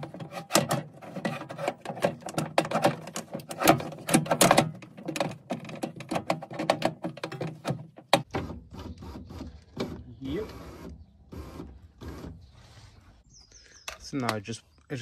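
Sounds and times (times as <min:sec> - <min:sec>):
metal parts clicking and rattling: 0:00.0 - 0:08.3.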